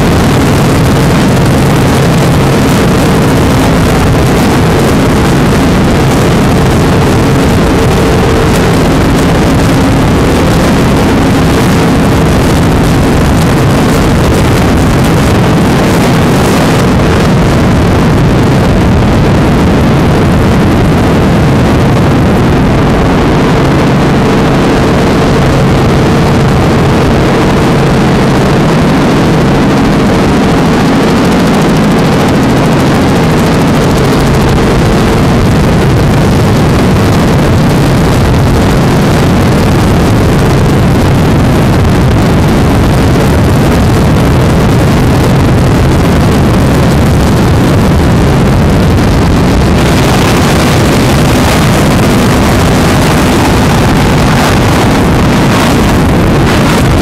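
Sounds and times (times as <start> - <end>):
powerboat engine drone: 0.0 - 57.0
rushing wind: 0.0 - 57.0
rushing water: 49.6 - 57.0.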